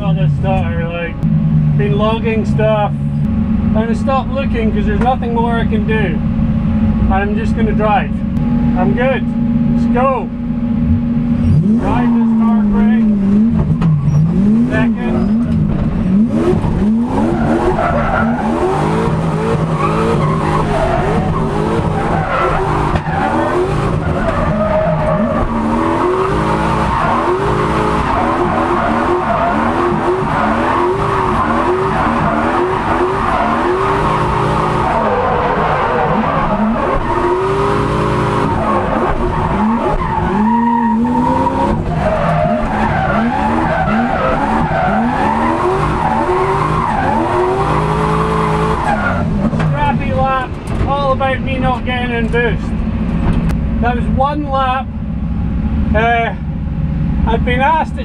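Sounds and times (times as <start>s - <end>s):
car engine revving: 0.0s - 57.8s
tyres squealing and skidding: 11.4s - 49.9s.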